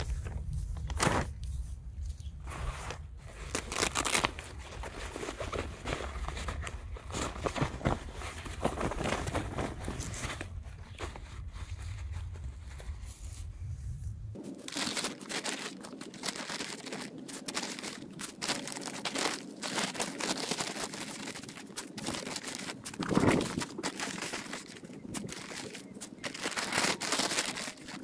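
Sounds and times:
paper sack crinkling: 0:02.5 - 0:13.3, 0:14.4 - 0:28.0
low rumble: 0:11.5 - 0:14.4, 0:23.0 - 0:23.8.

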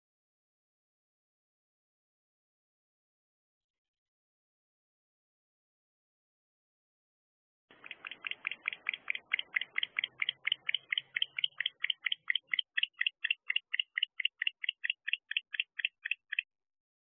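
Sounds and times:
owl chirping call: 0:07.7 - 0:16.4.

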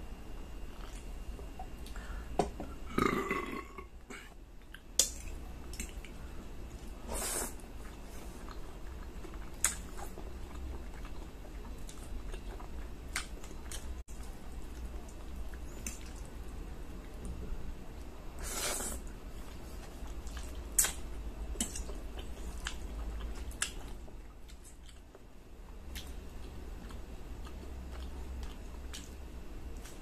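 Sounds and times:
chewing: 0:00.7 - 0:02.0, 0:07.7 - 0:17.4, 0:19.0 - 0:30.0
person burping: 0:02.8 - 0:04.3.

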